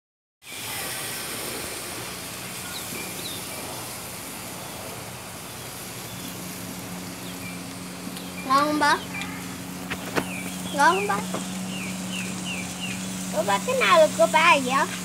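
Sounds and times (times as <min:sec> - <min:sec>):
food sizzling in skillets: 0:00.4 - 0:15.0
faint high chirps: 0:02.5 - 0:03.8.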